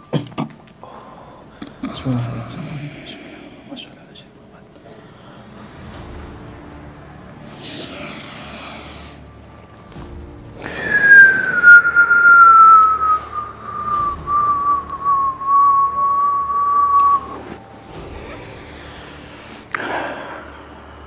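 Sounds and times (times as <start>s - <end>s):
breathy rush of noise: 0.8s - 21.0s
person whistling long note: 10.6s - 17.7s.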